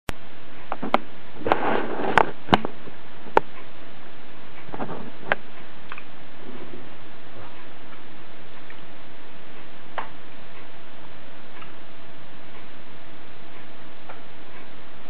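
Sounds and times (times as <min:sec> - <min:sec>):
steady hiss: 0:00.2 - 0:15.0
sharp clicks and knocks: 0:00.6 - 0:03.7.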